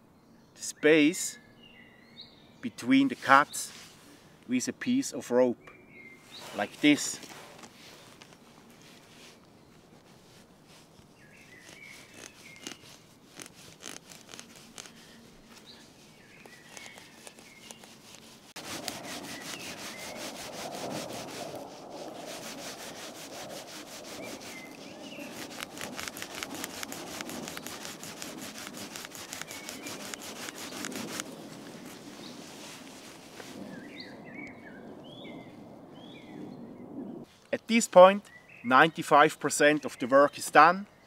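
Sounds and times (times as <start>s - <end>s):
rope rubbing on wood: 3.2s - 4.1s, 6.3s - 33.8s.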